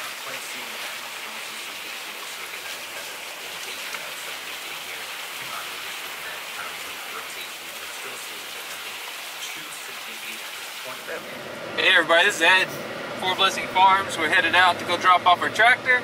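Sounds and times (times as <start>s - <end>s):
water pouring off roof: 0.0s - 12.6s
heavy rain hiss: 0.0s - 14.8s.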